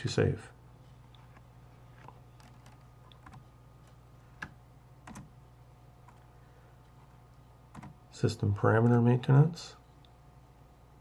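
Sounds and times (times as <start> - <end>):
low electrical hum: 0.0 - 11.0
keyboard keystrokes: 2.4 - 3.4, 4.4 - 5.3, 7.7 - 8.0.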